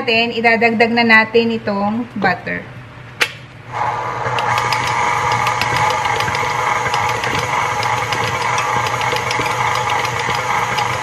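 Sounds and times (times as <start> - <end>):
stand mixer motor drone: 3.7 - 11.0.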